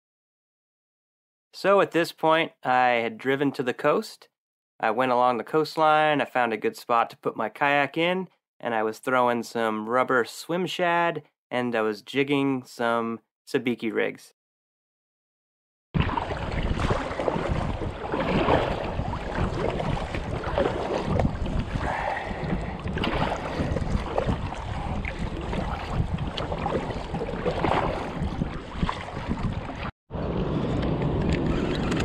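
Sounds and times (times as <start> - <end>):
water sloshing against kayak: 16.0 - 29.9
wind buffeting microphone: 16.0 - 32.0.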